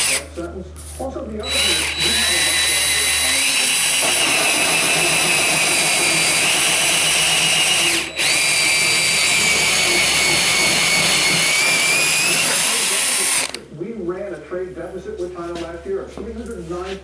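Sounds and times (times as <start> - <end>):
electric drill motor whine: 0.0 - 0.2, 1.4 - 13.6
cutter scraping through board: 1.4 - 13.6.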